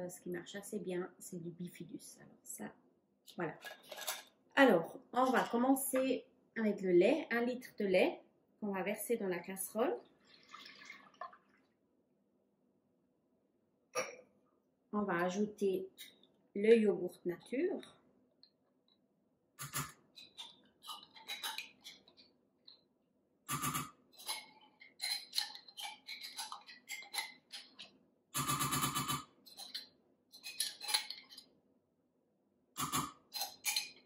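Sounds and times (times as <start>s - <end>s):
metal spoon scraping pot: 3.6s - 4.3s, 19.6s - 22.2s, 23.6s - 31.5s, 32.8s - 34.0s
spoon clinking on metal: 33.4s - 34.0s.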